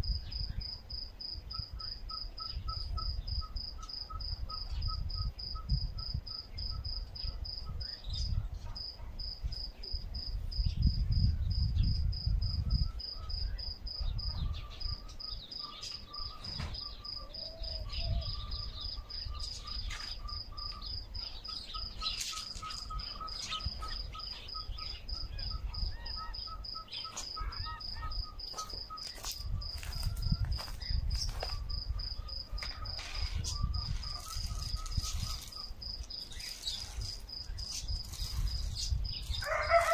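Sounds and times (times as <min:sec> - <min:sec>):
crickets chirping: 0:00.0 - 0:39.9
low rumble in gusts: 0:10.0 - 0:14.7
lower-pitched chirping: 0:11.6 - 0:39.5.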